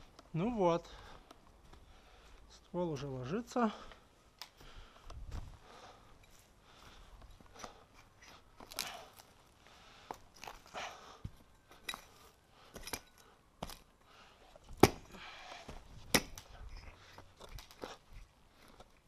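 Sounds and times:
earth crunching and scraping: 4.6 - 19.0
axe chopping roots: 14.7 - 16.6.

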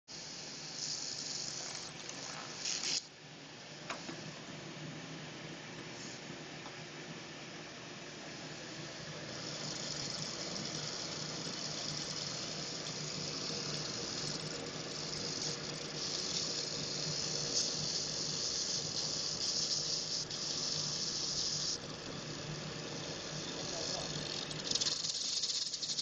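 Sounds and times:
belt sander motor hum: 9.0 - 26.0
sanding belt hissing rasp: 9.3 - 26.0.

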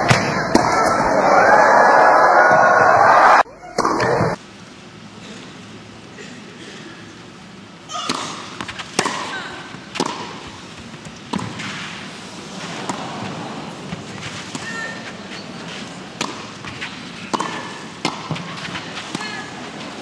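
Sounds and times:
faint crowd noise: 5.0 - 20.0
racquet striking tennis ball: 8.0 - 10.5, 11.3 - 12.0, 16.1 - 20.0.

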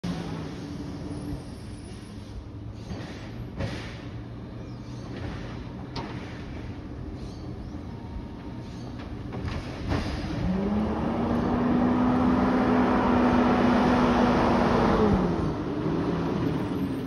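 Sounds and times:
diesel truck engine revving: 9.4 - 17.0.

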